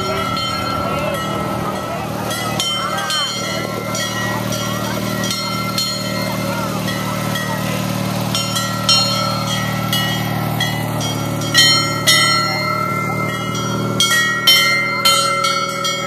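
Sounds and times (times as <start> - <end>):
large bells clanging: 0.0 - 16.0
small tractor engine running: 0.0 - 16.0.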